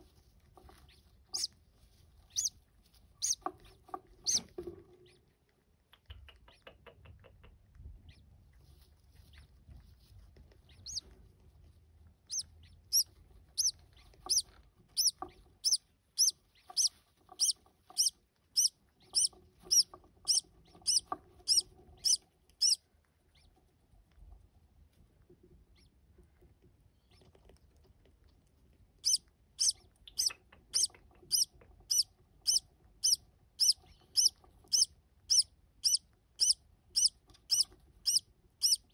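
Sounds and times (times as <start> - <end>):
parrot chick cheeping: 0.9 - 1.6, 2.2 - 2.6, 3.2 - 5.3, 5.9 - 8.3, 10.6 - 11.1, 12.2 - 23.6, 25.7 - 26.0, 29.0 - 38.9.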